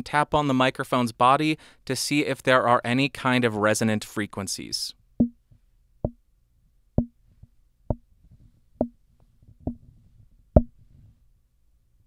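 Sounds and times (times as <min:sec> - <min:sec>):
fingers tapping on microphone: 0:09.6 - 0:09.8.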